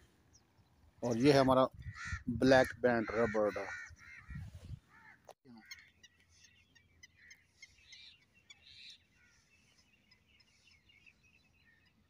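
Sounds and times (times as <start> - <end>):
faint bird chirps: 4.0 - 12.0.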